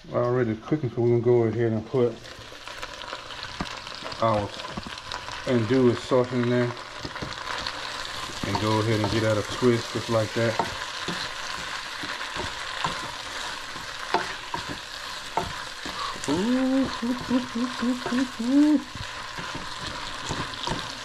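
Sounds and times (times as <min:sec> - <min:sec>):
sausage sizzling in a pan: 0:00.0 - 0:21.0
man humming: 0:16.0 - 0:19.0.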